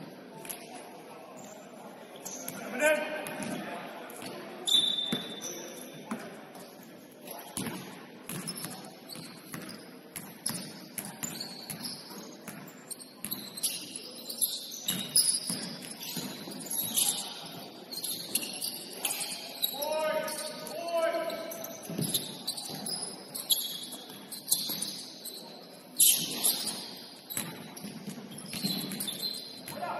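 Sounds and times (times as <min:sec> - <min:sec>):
short high shoe squeaks: 0:04.6 - 0:05.9, 0:08.5 - 0:20.6, 0:21.2 - 0:29.7.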